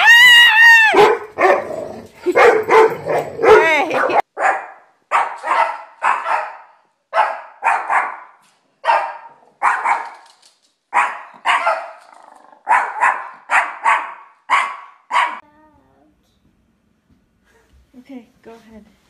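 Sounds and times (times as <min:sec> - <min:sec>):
dog barking: 0:00.9 - 0:10.2, 0:10.9 - 0:12.0, 0:12.6 - 0:15.4.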